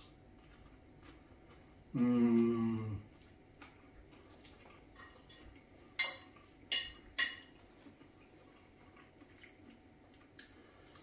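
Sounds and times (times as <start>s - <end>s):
fork clinking on ceramic plate: 6.0s - 7.6s.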